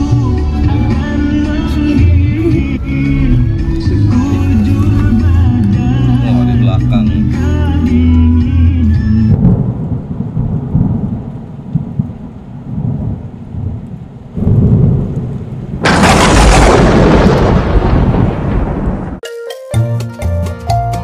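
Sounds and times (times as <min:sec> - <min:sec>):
low rolling thunder: 0:09.3 - 0:19.2
heavy rain: 0:09.4 - 0:19.2.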